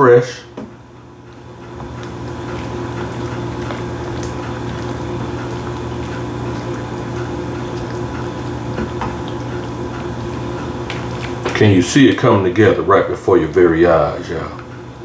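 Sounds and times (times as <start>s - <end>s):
steady low hum: 0.0s - 15.0s
sauce bubbling and popping: 0.8s - 12.3s.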